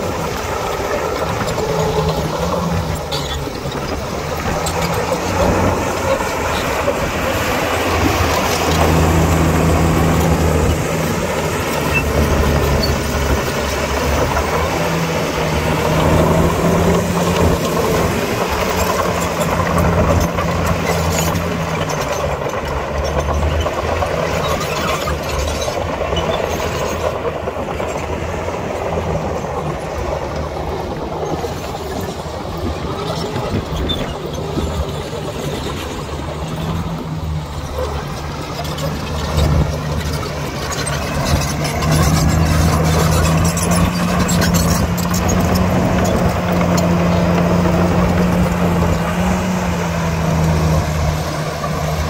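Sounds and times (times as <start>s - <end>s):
heavy diesel engine under load: 0.0s - 52.0s.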